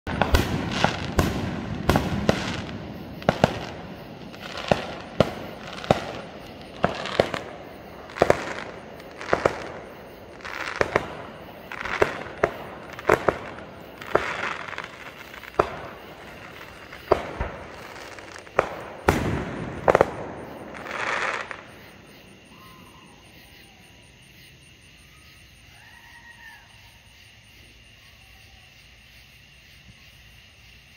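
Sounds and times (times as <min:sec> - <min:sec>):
fireworks bangs and crackles: 0:00.0 - 0:24.1
faint chirps: 0:20.6 - 0:29.0.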